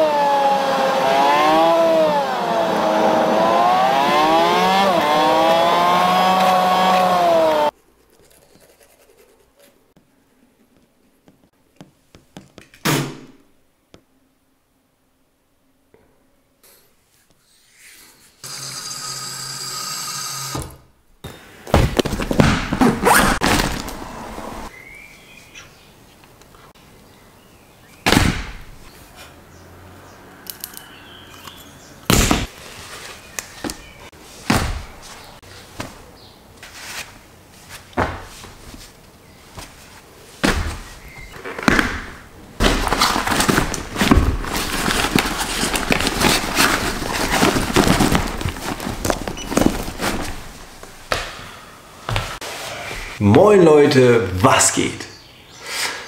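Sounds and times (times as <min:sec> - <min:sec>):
rustling: 0:32.4 - 0:41.6, 0:42.6 - 0:51.1.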